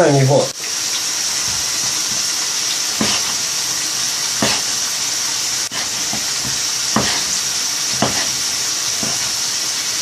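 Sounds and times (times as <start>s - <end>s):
potatoes sizzling in oil: 0.0s - 10.0s
knife on wooden cutting board: 3.0s - 3.6s, 4.3s - 4.8s, 5.7s - 9.4s.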